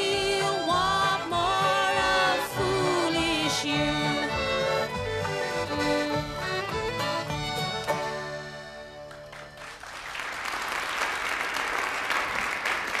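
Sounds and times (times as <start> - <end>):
acoustic folk song: 0.0 - 9.6
audience applause: 9.0 - 13.0.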